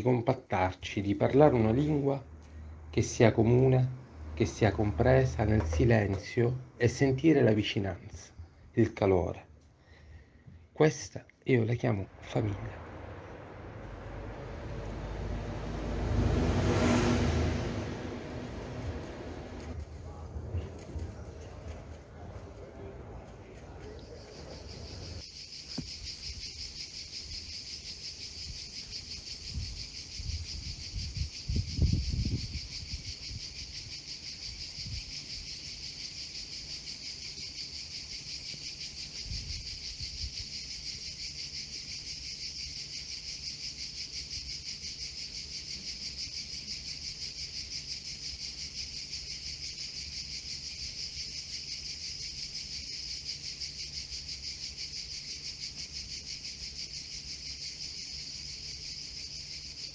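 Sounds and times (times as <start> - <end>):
insects chirring: 11.5 - 59.9
low rumbles: 11.8 - 25.2.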